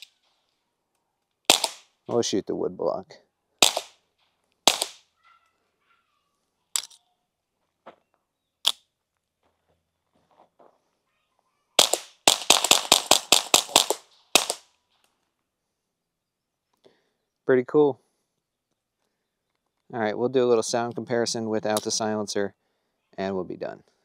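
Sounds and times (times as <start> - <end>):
suppressed pistol shots: 1.5 - 1.9, 3.6 - 4.0, 4.6 - 5.0, 11.8 - 14.6.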